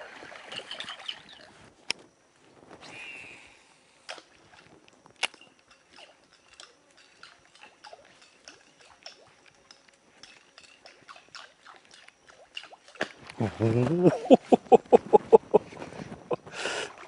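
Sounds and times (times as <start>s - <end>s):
small splashes of lure on water: 4.0s - 13.4s.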